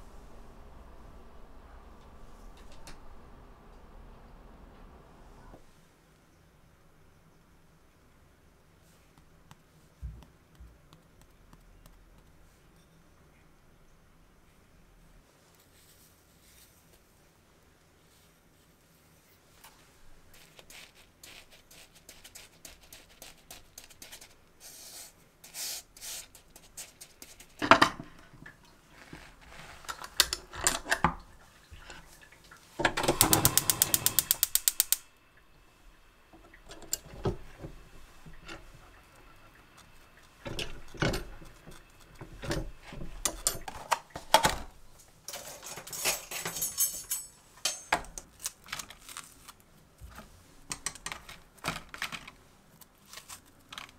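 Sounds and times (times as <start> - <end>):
gas burner lighting: 0.0 - 5.6, 32.8 - 35.2, 36.3 - 44.7
rustling and knife cuts: 19.6 - 27.6, 52.7 - 53.9
gas igniter clicking rapidly: 33.0 - 35.0.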